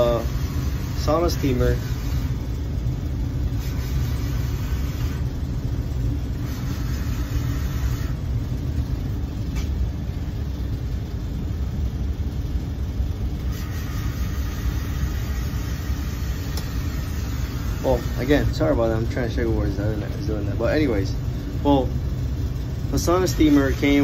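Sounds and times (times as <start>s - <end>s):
faint hum: 0.0s - 24.0s
low machinery rumble: 0.0s - 24.0s.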